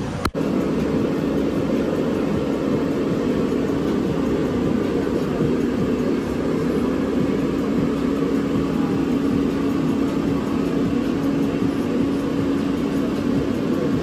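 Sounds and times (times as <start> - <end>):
small motor humming: 0.0 - 14.0.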